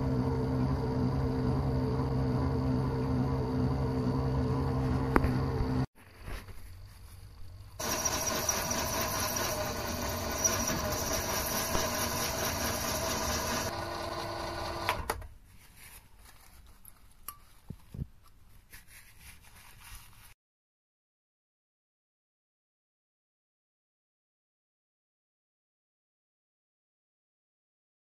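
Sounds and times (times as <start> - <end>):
lathe machine whine: 0.0 - 5.9, 7.8 - 15.1.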